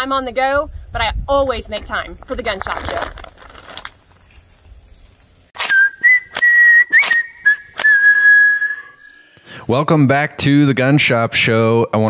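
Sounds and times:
high whistled jingle: 0:05.6 - 0:09.2.

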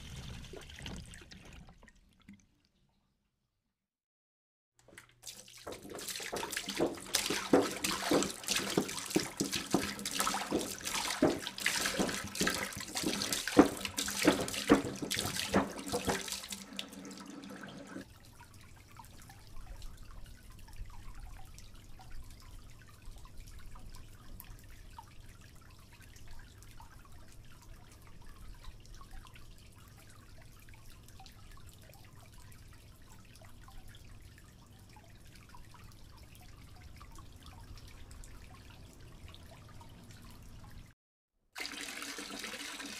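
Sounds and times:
water trickling and dripping: 0:00.0 - 0:03.0, 0:04.8 - 0:41.0
water splashing on concrete: 0:04.9 - 0:18.0.

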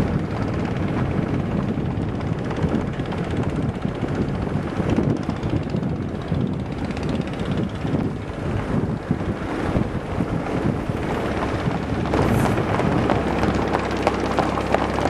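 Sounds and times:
hooves clopping on asphalt: 0:00.0 - 0:15.0
wind buffeting microphone: 0:00.0 - 0:15.0.

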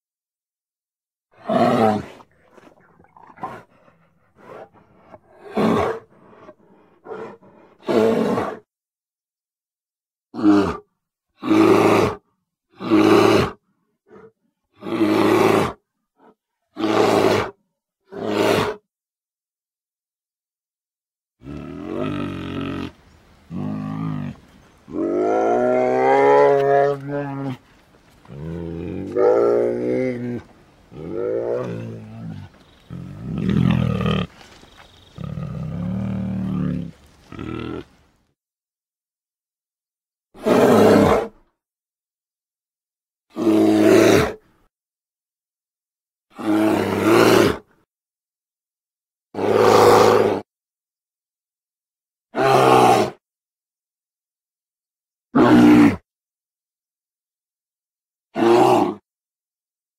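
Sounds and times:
deep animal roars: 0:28.2 - 0:34.4, 0:35.1 - 0:38.0, 0:49.4 - 0:50.4, 0:55.4 - 0:56.0, 0:58.4 - 0:59.0.

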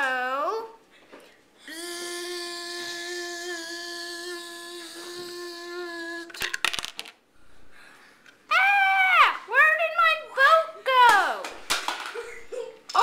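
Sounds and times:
child humming: 0:01.6 - 0:06.5.

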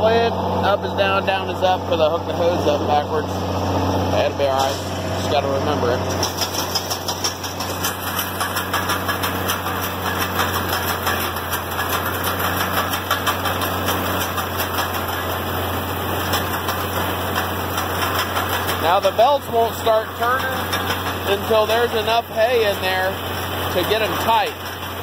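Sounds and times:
tractor engine running: 0:00.0 - 0:25.0
baler mechanical clatter: 0:00.1 - 0:25.0.

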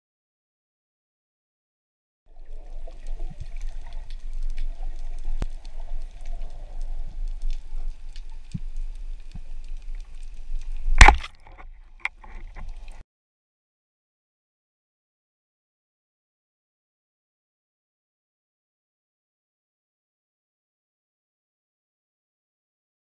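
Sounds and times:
faint underwater clicks and crackle: 0:02.3 - 0:13.0
underwater low rumble: 0:02.3 - 0:13.0
speargun firing crack: 0:11.0 - 0:11.4.

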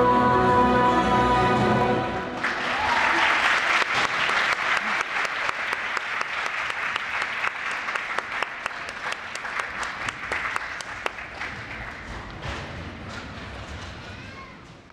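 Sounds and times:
audience applauding: 0:02.3 - 0:12.4.

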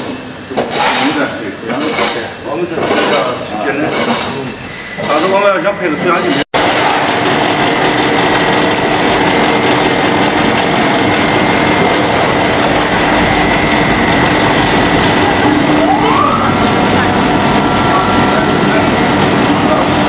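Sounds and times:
boiler machinery running: 0:00.0 - 0:20.0
steady hums: 0:00.0 - 0:20.0
rising whine: 0:04.4 - 0:20.0.

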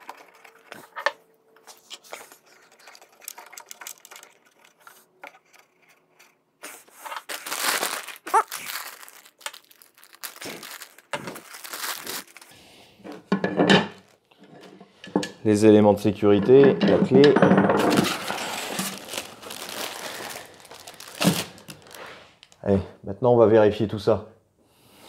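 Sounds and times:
plastic bag crinkling: 0:01.7 - 0:05.0, 0:06.7 - 0:12.7, 0:17.9 - 0:22.6.

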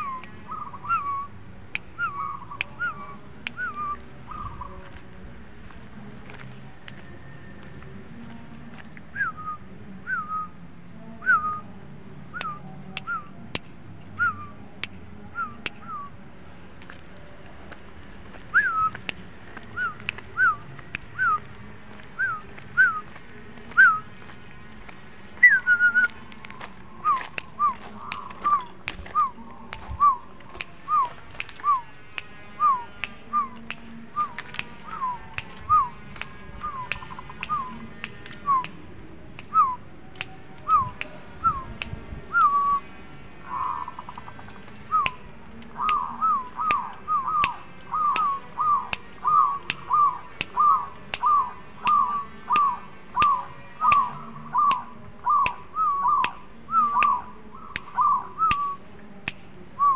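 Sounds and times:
doves cooing: 0:45.7 - 0:58.8.

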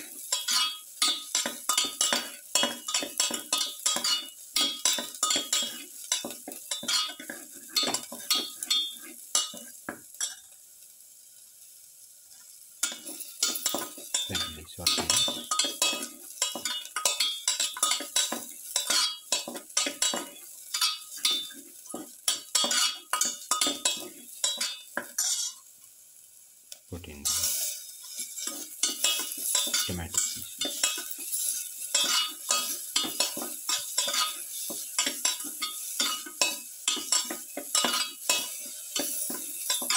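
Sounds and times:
light sizzle of frying: 0:00.0 - 0:39.9
spatula scraping steel pan: 0:22.3 - 0:25.6, 0:27.4 - 0:39.9.

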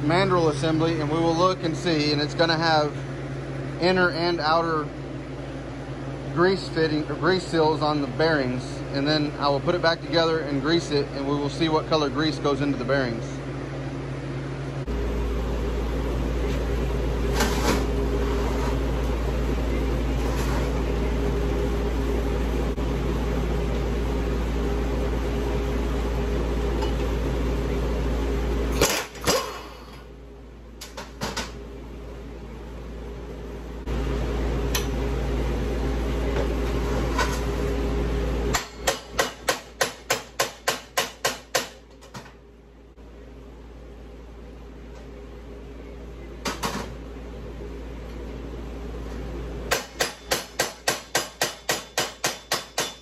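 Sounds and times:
machine hum: 0:00.0 - 0:41.0.

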